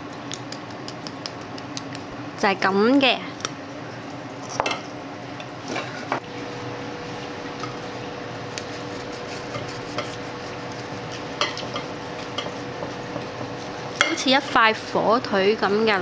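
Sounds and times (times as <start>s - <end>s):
knife sawing through crispy skin: 8.5s - 14.0s
knife and fork scraping: 8.6s - 14.2s.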